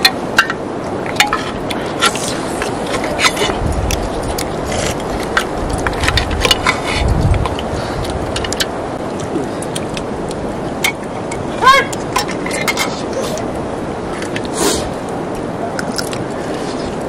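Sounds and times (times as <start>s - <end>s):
background hiss: 6.6s - 17.0s.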